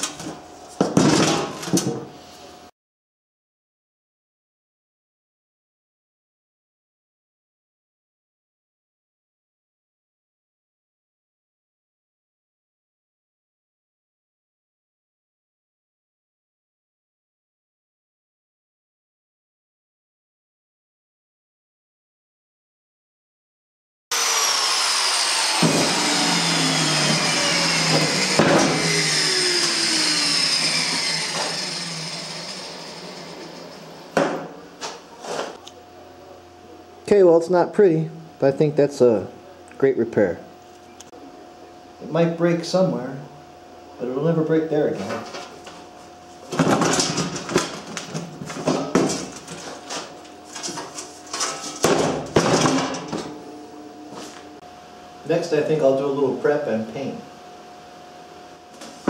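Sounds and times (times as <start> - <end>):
angle grinder winding down: 24.1 - 34.2.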